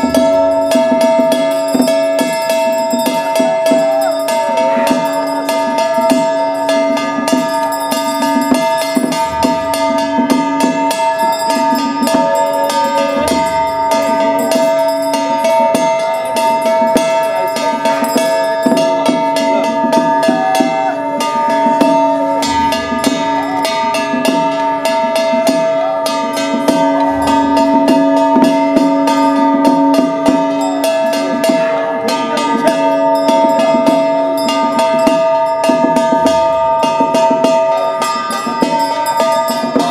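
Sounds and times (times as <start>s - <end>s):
handbell ringing continuously: 0.0s - 39.9s
ritual percussion: 0.0s - 39.9s
low thumps: 8.4s - 16.2s, 21.6s - 30.6s.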